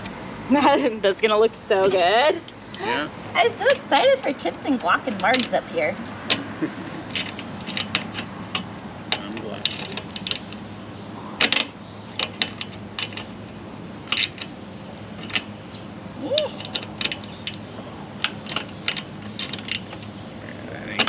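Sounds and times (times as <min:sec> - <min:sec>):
metal clicks and clinks: 0:03.7 - 0:05.7, 0:06.3 - 0:10.6.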